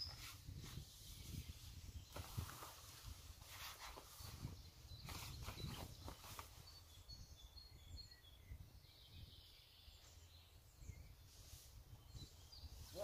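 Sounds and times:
songbird chirping: 0.0 - 13.0.

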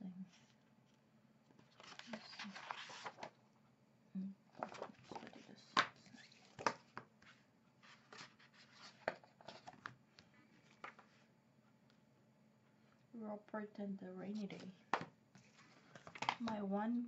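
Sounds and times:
book pages rustling: 1.5 - 3.4, 4.6 - 11.3, 14.3 - 16.5.

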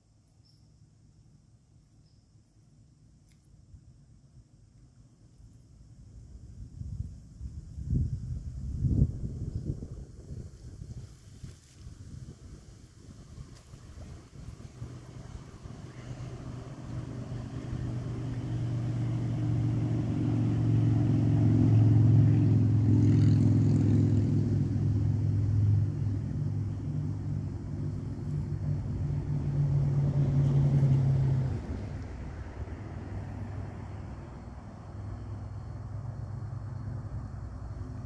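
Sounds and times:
engine running: 11.8 - 38.0.

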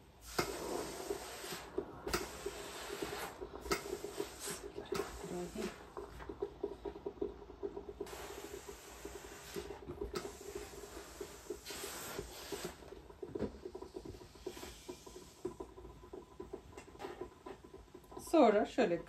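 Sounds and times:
steam iron hissing: 0.0 - 6.0, 8.0 - 13.0, 13.9 - 15.7.

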